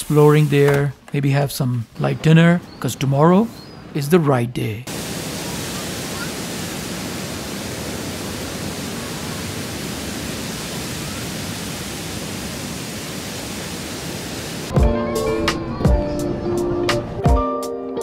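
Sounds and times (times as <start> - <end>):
steady hiss: 0.0 - 0.9, 4.9 - 14.7
music with a beat: 14.7 - 18.0.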